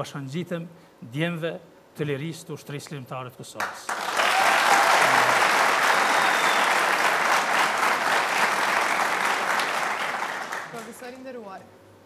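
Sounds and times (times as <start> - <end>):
audience applauding: 3.6 - 11.2.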